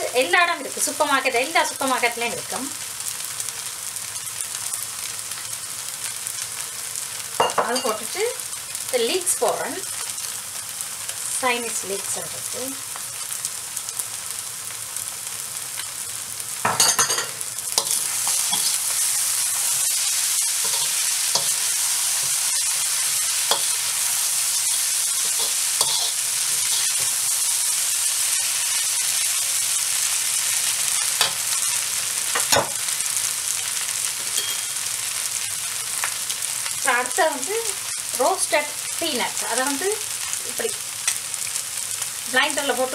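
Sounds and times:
food sizzling in a wok: 0.0s - 42.9s
metal clanks on wok: 16.6s - 18.8s, 20.6s - 21.6s, 23.5s - 23.8s, 25.2s - 27.1s, 34.2s - 34.8s
metal spatula scraping wok: 16.9s - 27.5s.

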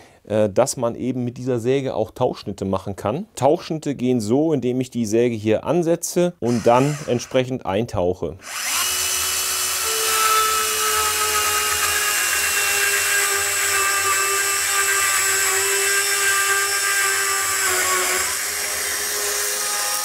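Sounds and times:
cordless saw cutting board: 6.4s - 7.4s, 8.4s - 20.0s.

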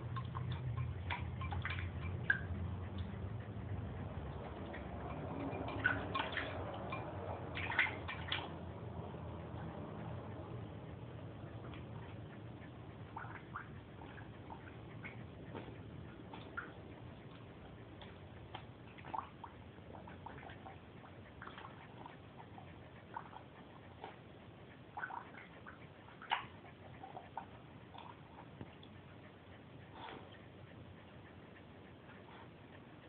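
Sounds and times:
puppy bubbling in water bowl: 0.0s - 3.3s, 4.1s - 9.8s, 12.9s - 28.9s
low hum: 0.0s - 33.0s.

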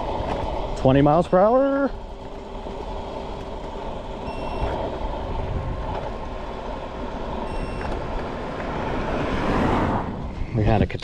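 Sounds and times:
electric scooter motor whine: 0.0s - 10.2s
tyre noise on asphalt: 0.0s - 10.6s
wind rumble on microphone: 2.0s - 11.0s
short high-pitched tones: 4.2s - 4.8s, 7.5s - 7.9s.

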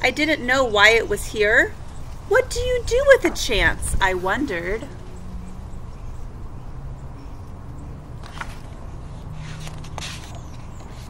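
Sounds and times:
book page turning: 8.2s - 11.0s.

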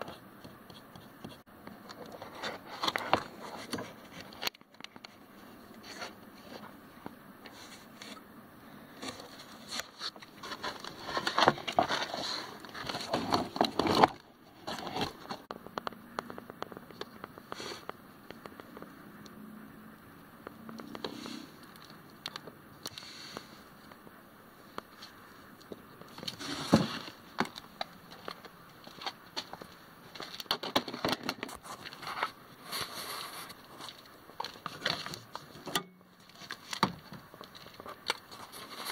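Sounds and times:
plastic parts clicking and rattling: 9.0s - 18.9s, 25.6s - 32.3s.

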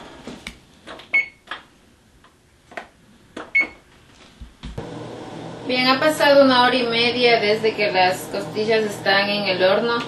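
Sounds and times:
keypad beeps: 1.1s - 1.4s, 3.5s - 3.8s.

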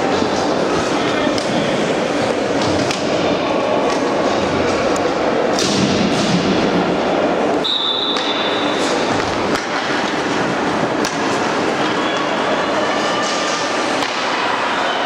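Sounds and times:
hockey sticks and puck knocking: 2.5s - 5.0s, 8.1s - 12.3s, 13.1s - 14.6s
referee's whistle: 7.6s - 8.8s.

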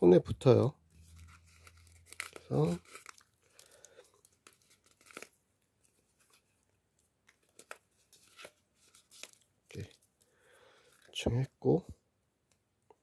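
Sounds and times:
paper tearing: 1.0s - 3.4s.

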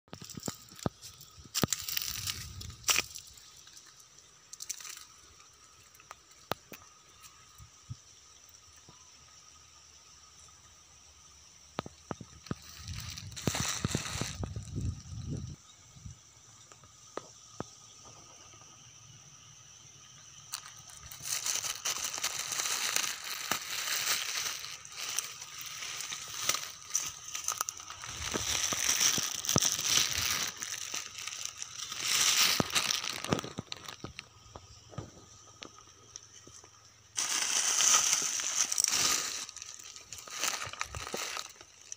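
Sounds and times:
footsteps on dry grass and twigs: 0.1s - 3.9s, 12.0s - 15.5s, 20.4s - 41.9s.

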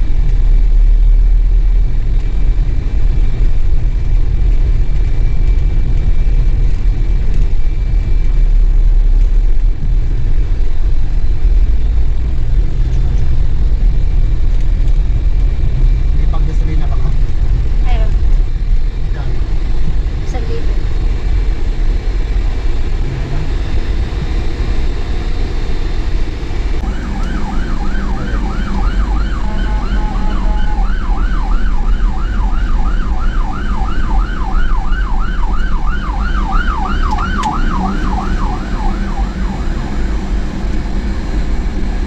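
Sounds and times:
truck engine and road noise: 0.0s - 42.0s
siren yelping: 26.8s - 41.0s.

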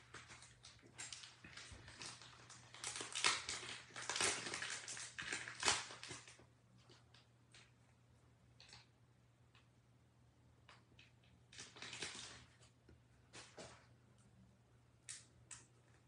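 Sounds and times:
crinkling and rustling: 0.0s - 7.8s, 10.6s - 13.9s.

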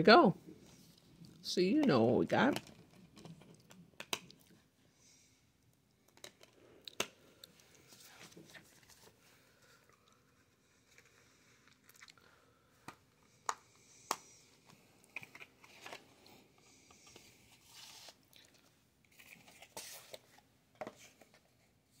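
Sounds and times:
cardboard and plastic rustling: 15.1s - 21.7s.

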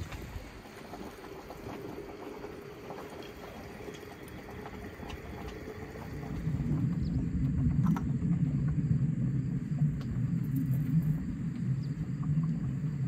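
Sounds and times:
low rumble: 3.6s - 13.0s.

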